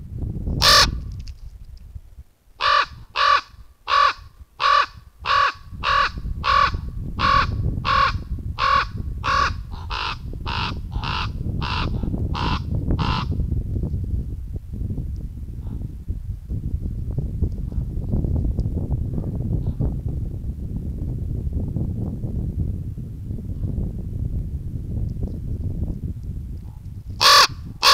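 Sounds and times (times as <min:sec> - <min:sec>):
raven croaking: 0:00.6 - 0:01.0, 0:02.6 - 0:13.4, 0:27.2 - 0:27.9.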